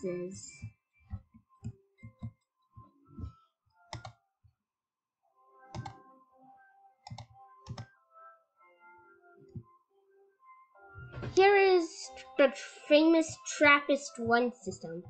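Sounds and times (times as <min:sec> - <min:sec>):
computer mouse clicking: 0:03.9 - 0:04.1, 0:05.7 - 0:06.0, 0:07.1 - 0:07.9.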